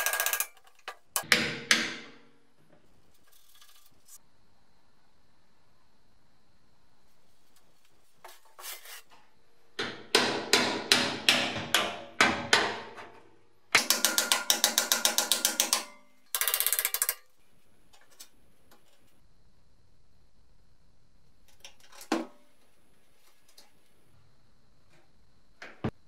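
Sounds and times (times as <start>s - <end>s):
hammer on chisel against metal: 13.8s - 16.0s.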